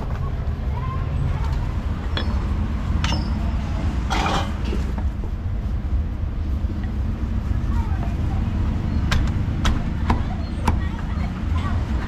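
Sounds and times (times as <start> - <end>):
street traffic rumble: 0.0 - 12.0
utensil clatter: 4.0 - 5.1.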